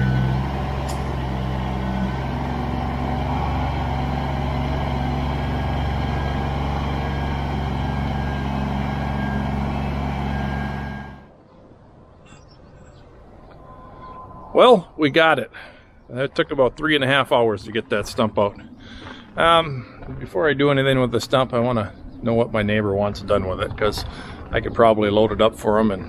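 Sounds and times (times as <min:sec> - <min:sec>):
tractor diesel engine running: 0:00.0 - 0:11.3.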